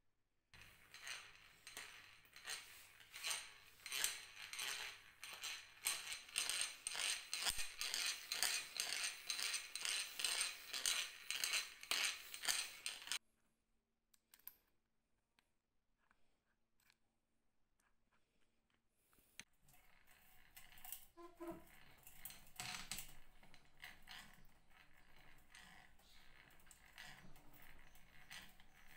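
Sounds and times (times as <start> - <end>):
hand drill gears clicking: 0.6 - 13.2, 19.7 - 28.9.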